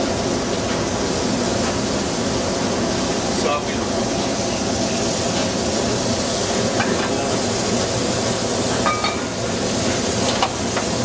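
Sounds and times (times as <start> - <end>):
grill low rumble: 0.0 - 11.0
ventilation hood hiss: 0.0 - 11.0.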